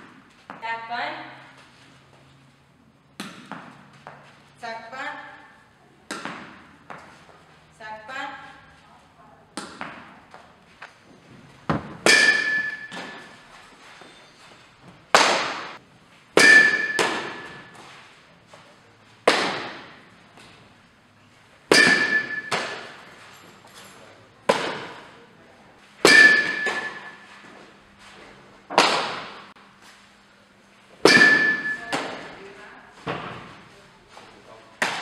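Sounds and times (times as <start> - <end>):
thrown balls striking: 3.1 - 4.2, 6.1 - 7.1, 9.5 - 10.4, 11.6 - 13.6, 15.1 - 17.8, 19.2 - 20.6, 21.7 - 23.2, 24.4 - 25.1, 26.0 - 27.5, 28.7 - 29.5, 31.0 - 32.4, 34.8 - 35.0.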